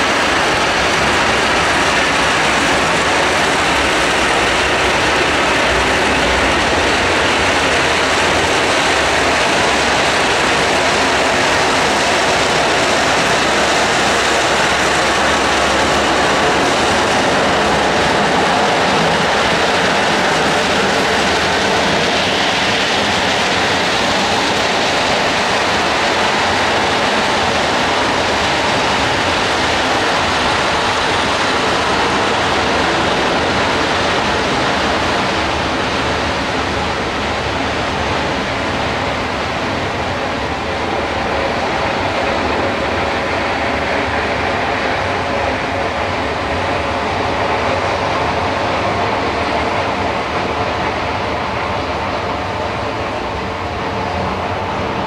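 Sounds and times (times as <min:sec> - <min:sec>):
freight wagons rolling past: 0:00.0 - 0:47.8.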